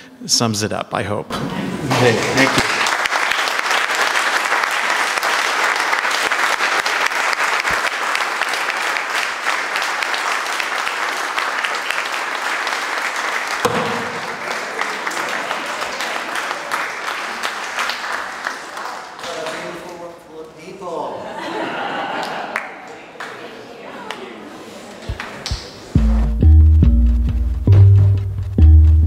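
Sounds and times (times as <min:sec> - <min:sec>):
audience applauding: 0:01.6 - 0:20.0, 0:21.8 - 0:24.3, 0:24.9 - 0:26.0.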